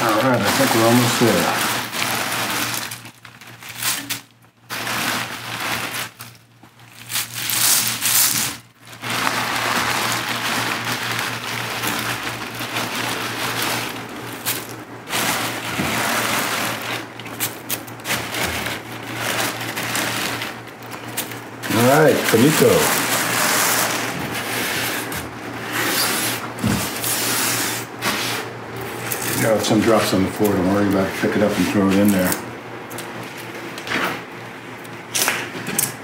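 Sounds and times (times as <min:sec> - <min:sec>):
dry leaves rustling and crackling: 0:00.0 - 0:25.6
plastic bag crinkling: 0:00.0 - 0:33.3.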